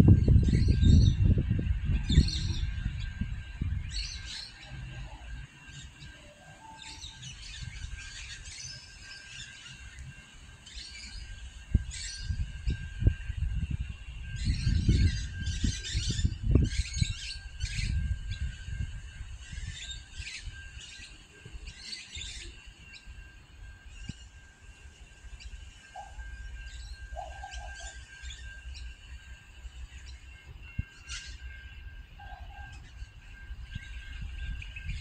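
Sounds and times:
low rumble: 0.0 - 5.2
faint steady high tone: 0.0 - 35.0.

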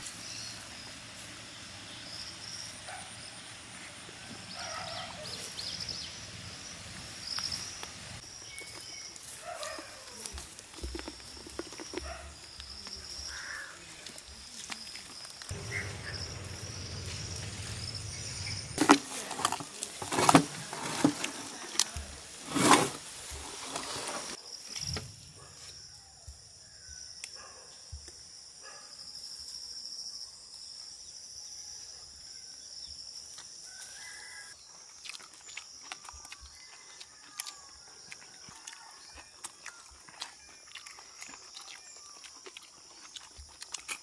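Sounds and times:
insect buzz: 14.5 - 19.8
birds calling: 15.5 - 19.0
meat tearing and crackling: 34.8 - 44.0.

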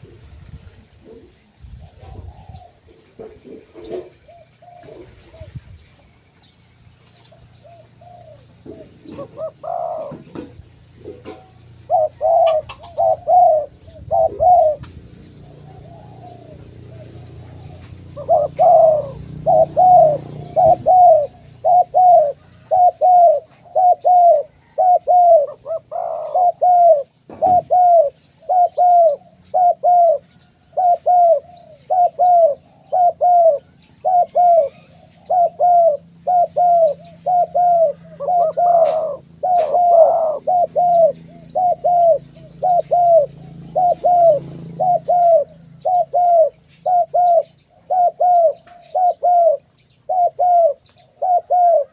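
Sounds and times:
doves cooing: 0.0 - 6.4, 7.2 - 51.9.

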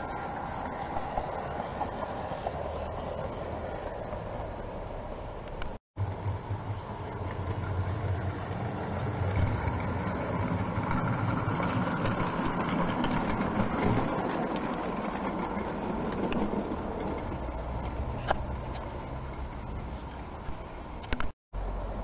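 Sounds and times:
model train wheels rumbling on track: 6.0 - 21.0.

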